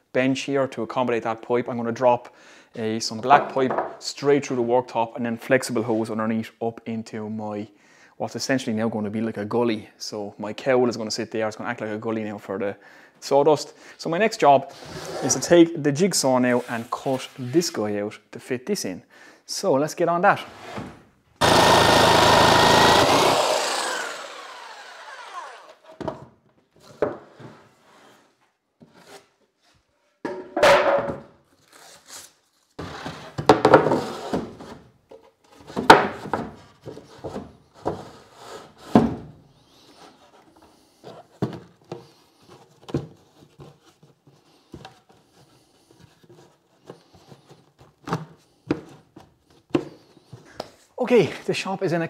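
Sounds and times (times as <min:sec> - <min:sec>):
wooden knocks and thumps: 0:03.3 - 0:04.0
jigsaw cutting plywood: 0:21.4 - 0:26.0.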